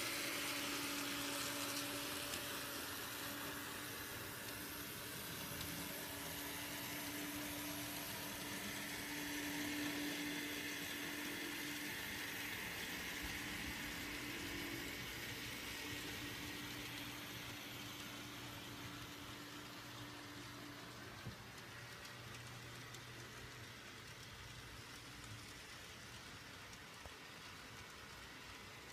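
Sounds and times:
model train motor hum: 0.0 - 28.9.

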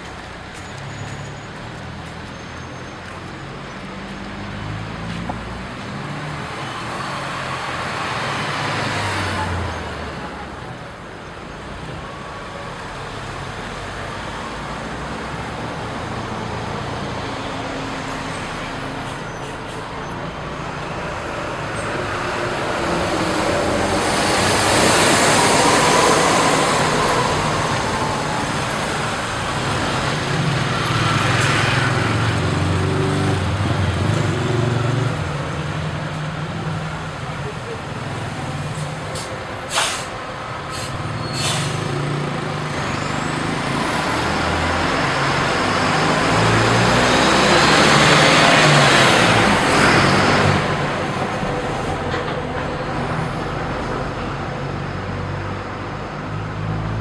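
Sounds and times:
bus engine hum: 0.0 - 57.0
cars passing: 0.0 - 57.0
motorcycles passing: 21.6 - 38.7.

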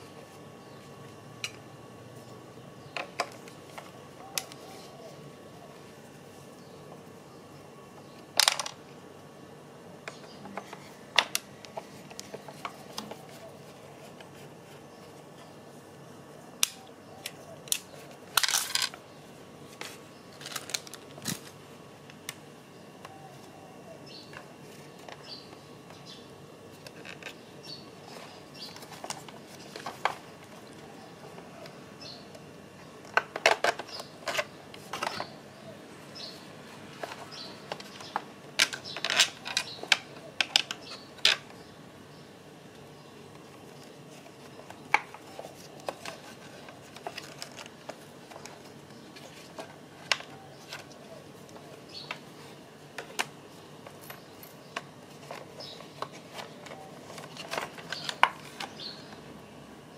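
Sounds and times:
plastic clatter: 17.7 - 19.0, 33.0 - 35.3, 44.4 - 52.2, 54.8 - 58.9.

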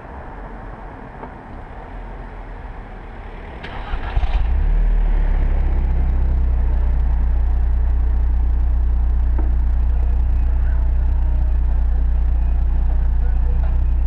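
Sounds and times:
car engine starting and idling: 3.4 - 14.0.

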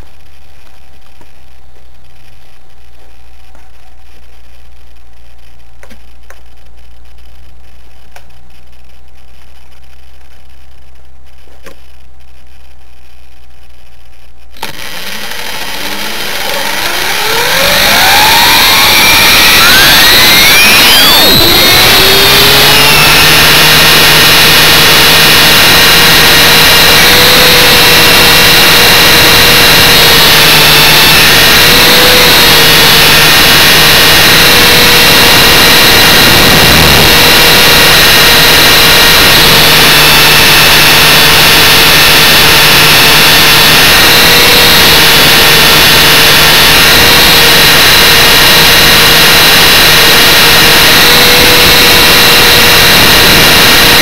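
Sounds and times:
model motor whining: 14.6 - 54.0.

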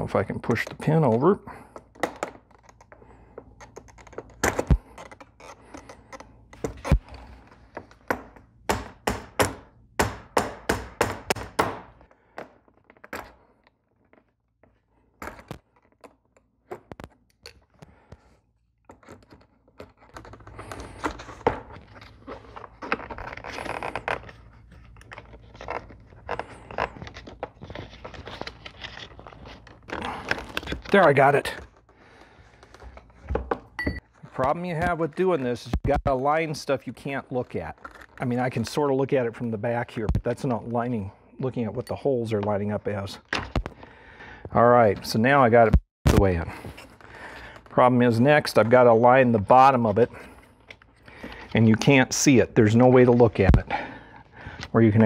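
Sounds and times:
plastic parts rubbing and scraping: 1.8 - 8.5, 12.0 - 33.4, 36.8 - 38.8.

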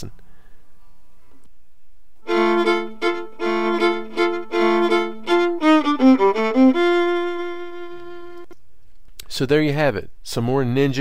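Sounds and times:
solo melody of sustained notes: 2.2 - 8.5.

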